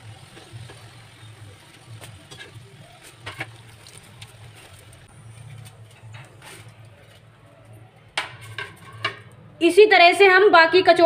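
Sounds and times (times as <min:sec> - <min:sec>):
oil sizzling: 0:00.0 - 0:06.8.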